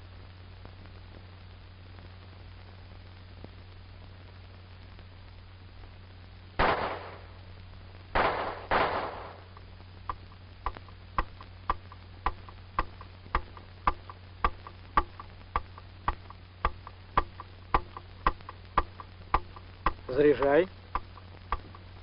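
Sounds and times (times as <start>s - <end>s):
pistol shots echoing: 6.6s - 7.2s, 8.2s - 9.5s
steady ticking: 9.4s - 22.0s.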